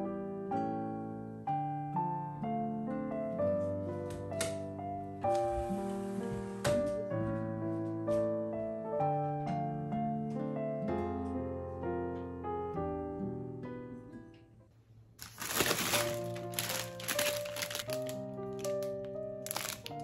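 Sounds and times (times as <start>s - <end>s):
gentle piano music: 0.0s - 20.0s
plastic packaging crinkling: 15.2s - 20.0s.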